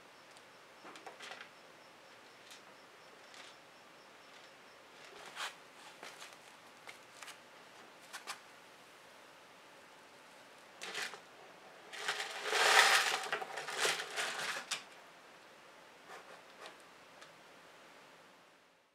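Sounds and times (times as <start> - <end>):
light clicks and scratches: 4.3 - 8.4, 16.1 - 17.3
grain rattling out of bottle: 10.8 - 11.3, 11.9 - 14.8
plastic bottle crinkling: 11.9 - 14.8.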